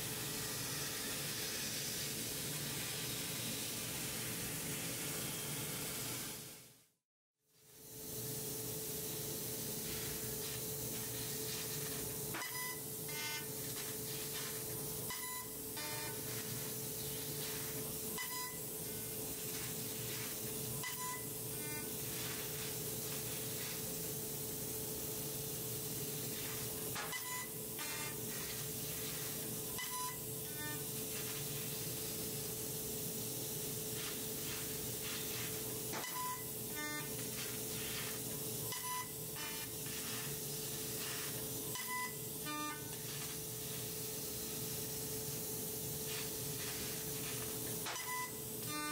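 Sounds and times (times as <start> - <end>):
laser cutting hiss: 0.0 - 6.7, 7.7 - 48.9
steady machine hum: 7.7 - 48.9
short beep-like tones: 12.4 - 13.4, 15.1 - 16.1, 18.2 - 18.6, 20.8 - 21.3, 27.1 - 27.6, 29.8 - 30.2, 36.0 - 37.1, 38.7 - 39.2, 41.8 - 42.2, 47.9 - 48.9.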